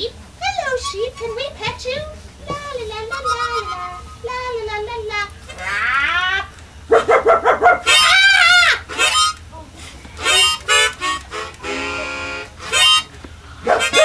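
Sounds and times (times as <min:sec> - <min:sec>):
harmonica playing a tune: 0:00.0 - 0:05.8, 0:07.8 - 0:14.0.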